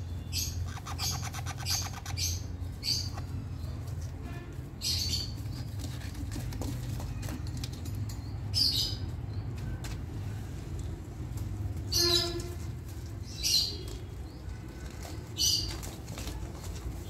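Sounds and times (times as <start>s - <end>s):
parrots harsh calls: 0.4s - 2.4s.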